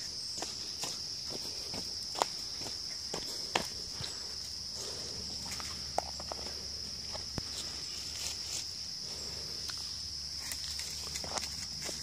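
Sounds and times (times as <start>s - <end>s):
insects chirring: 0.0s - 12.0s
footsteps on leaf litter: 6.4s - 9.1s, 10.4s - 12.0s.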